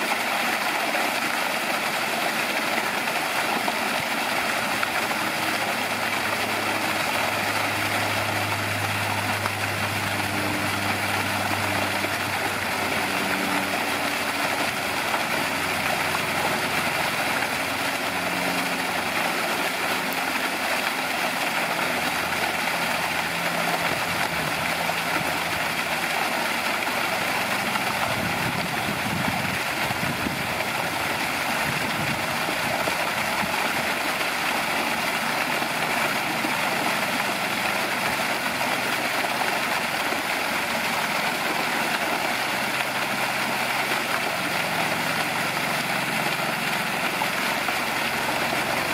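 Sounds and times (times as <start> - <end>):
machine-like drone: 0.0 - 48.9
low hum shifting in pitch: 4.4 - 39.0.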